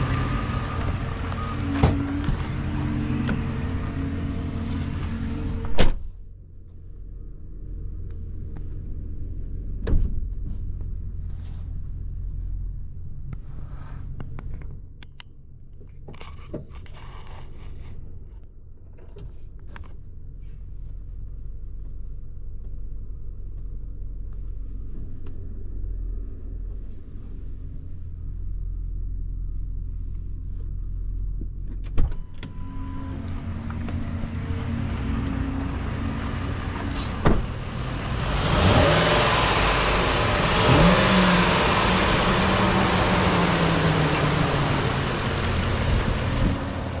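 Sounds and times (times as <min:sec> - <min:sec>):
pickup truck engine idling: 0:33.2 - 0:47.0.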